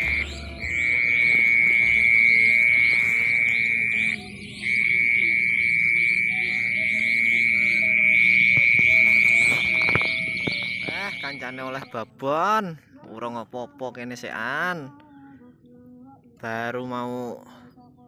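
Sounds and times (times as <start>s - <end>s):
insect trilling: 0.0s - 12.1s
insects chirping: 0.0s - 12.2s.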